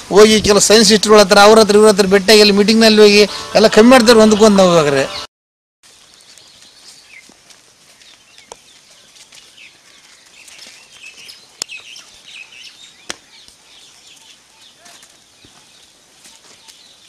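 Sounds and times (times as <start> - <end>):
small birds chirping: 5.9 - 17.0.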